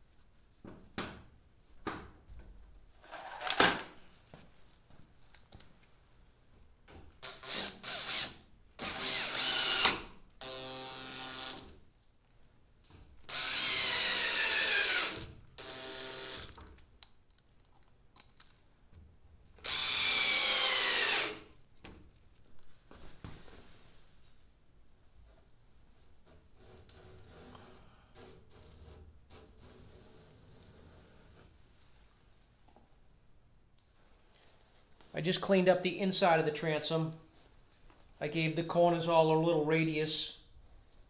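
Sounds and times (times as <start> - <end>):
cordless drill driving screws: 7.2 - 11.7, 13.3 - 16.6, 19.6 - 21.5.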